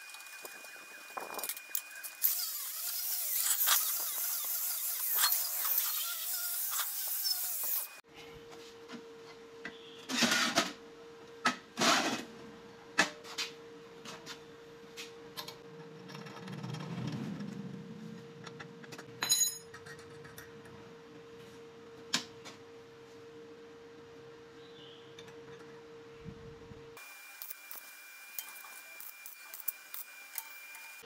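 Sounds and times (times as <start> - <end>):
steel parts clinking and knocking: 19.2 - 20.3.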